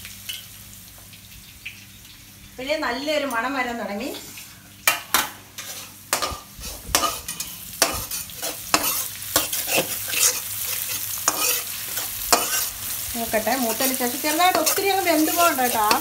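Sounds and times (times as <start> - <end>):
oil sizzling: 0.0 - 16.0
metal spatula scraping a pan: 5.6 - 12.8, 13.6 - 16.0.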